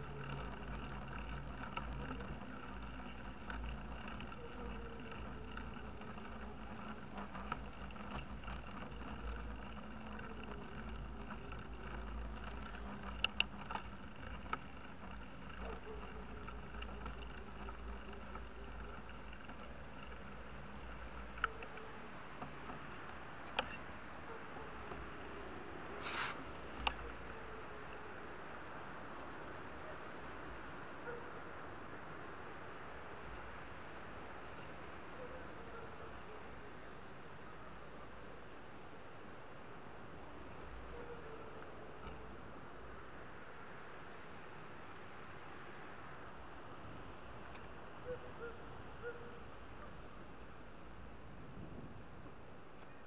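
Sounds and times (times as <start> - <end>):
sharp clicks or rattles: 0.0 - 24.0, 26.0 - 27.4
faint tyre hum: 0.0 - 53.0
wind and road noise: 0.0 - 53.0.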